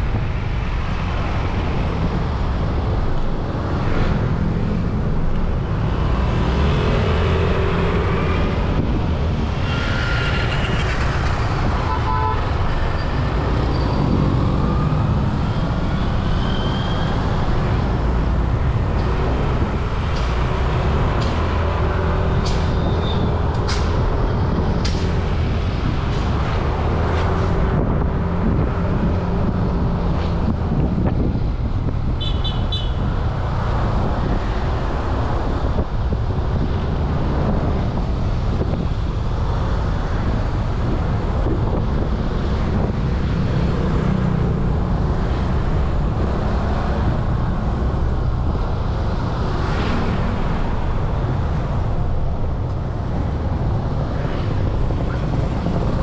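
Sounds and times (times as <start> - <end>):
road noise: 0.0 - 56.0.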